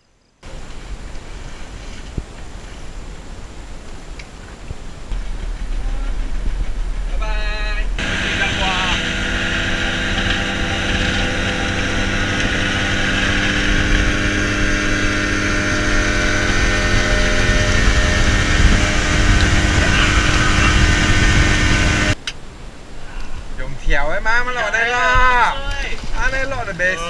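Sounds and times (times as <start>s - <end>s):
rushing water noise: 0.4s - 27.0s
outboard motor running: 5.1s - 22.2s.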